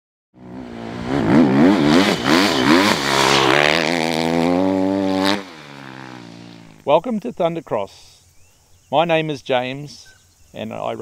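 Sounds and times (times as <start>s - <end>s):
dirt bike engine revving: 0.4s - 6.9s.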